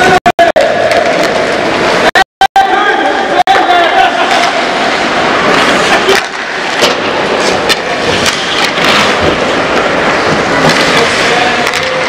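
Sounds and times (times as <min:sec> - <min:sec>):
rink noise: 0:00.0 - 0:12.0
hockey sticks and puck clacking: 0:00.8 - 0:02.0, 0:03.5 - 0:12.0
skates scraping ice: 0:03.6 - 0:12.0.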